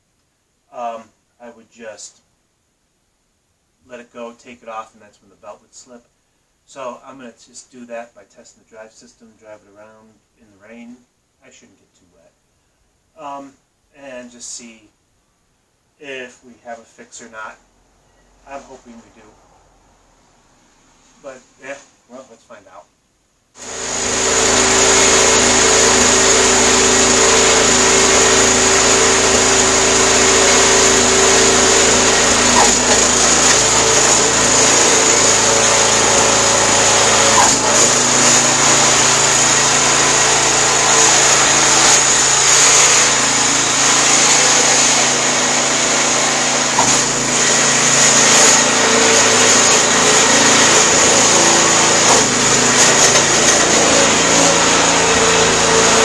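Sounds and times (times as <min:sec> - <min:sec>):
gas engine running under load: 0:23.6 - 0:56.0.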